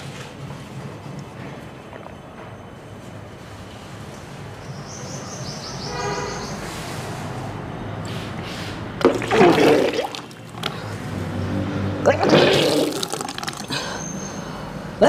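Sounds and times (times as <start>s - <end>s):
person retching: 9.0s - 10.7s, 12.1s - 13.9s
water gushing into plastic tub: 9.0s - 10.8s, 12.1s - 13.7s.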